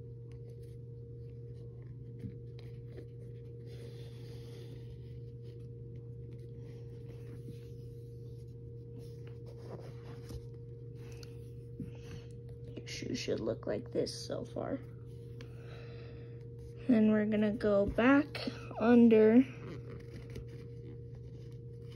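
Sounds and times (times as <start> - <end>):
steady low hum: 0.0 - 21.9
shoelace rubbing and scratching: 1.6 - 10.6.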